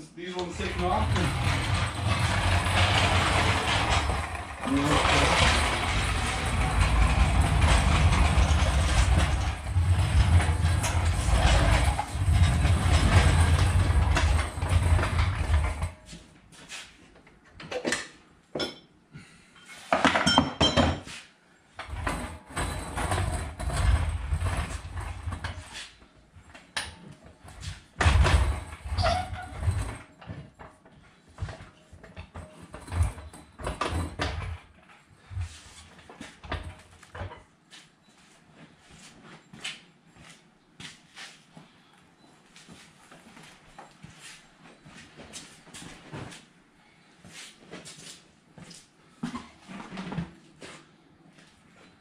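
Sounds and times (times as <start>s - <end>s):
continuous mechanical tool noise: 0.3s - 18.0s, 21.8s - 38.3s
short knocks and clanks: 0.4s - 16.1s.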